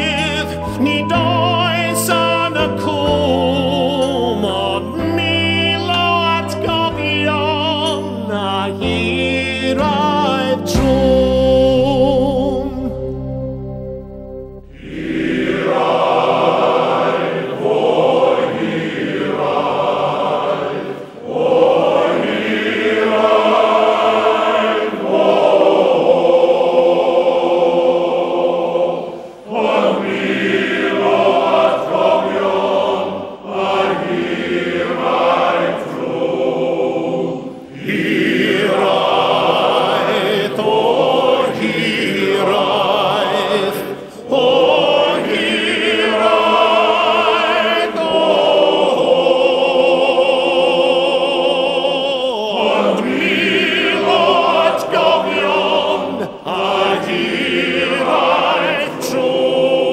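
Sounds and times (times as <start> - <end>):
solo male voice singing: 0.0 - 13.0, 38.6 - 45.3
male voice choir singing: 0.0 - 13.1, 14.7 - 59.9.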